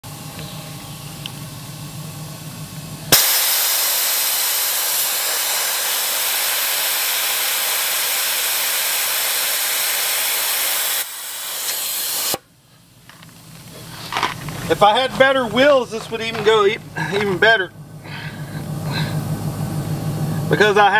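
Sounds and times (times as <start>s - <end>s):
air hissing out of a tire: 3.1s - 12.5s.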